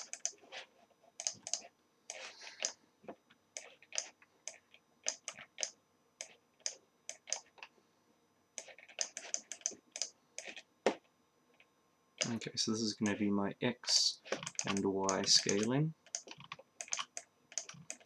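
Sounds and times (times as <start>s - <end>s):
mouse clicks: 0.0s - 0.4s, 1.2s - 2.8s, 3.6s - 7.7s, 8.6s - 10.6s, 14.3s - 18.0s
keyboard typing: 0.0s - 2.8s, 3.6s - 7.7s, 8.6s - 10.7s, 11.6s - 12.4s, 13.0s - 13.2s, 14.2s - 18.0s.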